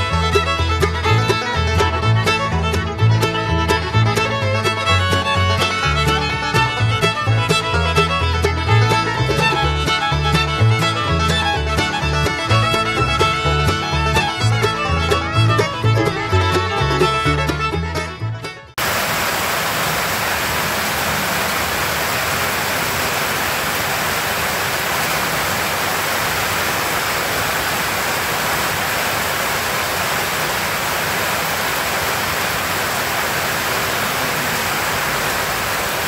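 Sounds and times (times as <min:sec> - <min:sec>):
fiddle and banjo bluegrass music: 0:00.0 - 0:18.8
rain on a tin roof: 0:18.8 - 0:36.0.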